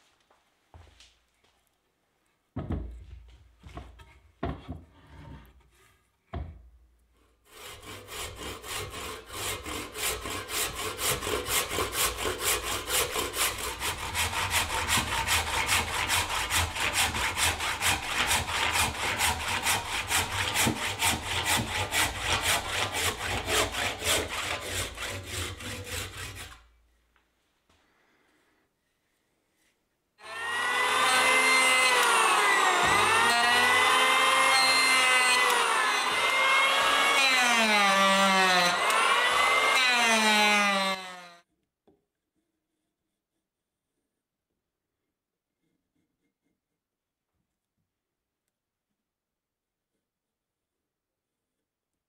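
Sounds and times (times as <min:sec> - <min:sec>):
handsaw cutting wood: 0:07.4 - 0:26.8, 0:30.2 - 0:41.4.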